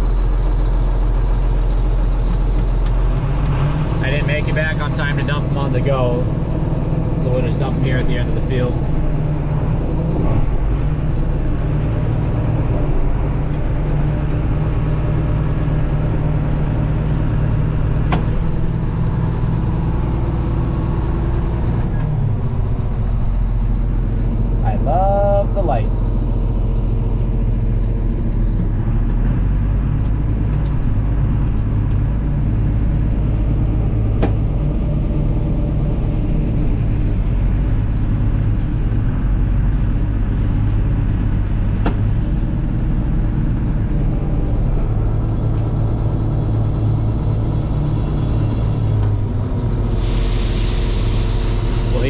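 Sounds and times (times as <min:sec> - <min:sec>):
combine harvester rumbling: 0:00.0 - 0:52.0
hiss: 0:49.8 - 0:52.0.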